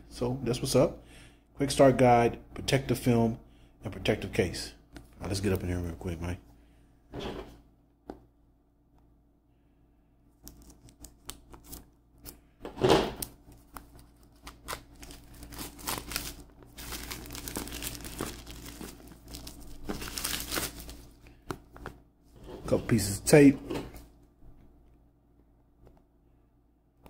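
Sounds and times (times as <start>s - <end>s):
plastic shrink wrap crinkling: 13.2s - 21.5s.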